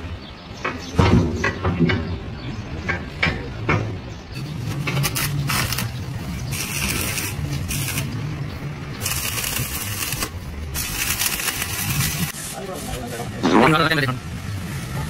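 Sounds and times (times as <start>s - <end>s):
welding arc crackling: 4.4s - 12.8s.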